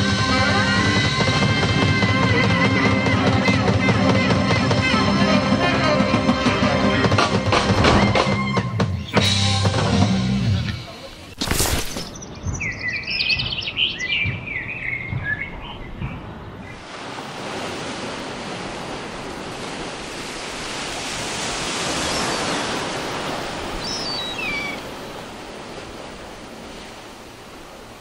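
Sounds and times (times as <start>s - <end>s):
sea waves against embankment: 10.8s - 28.0s
quick high bird chirps: 23.8s - 24.8s
brief bird call: 23.8s - 24.9s.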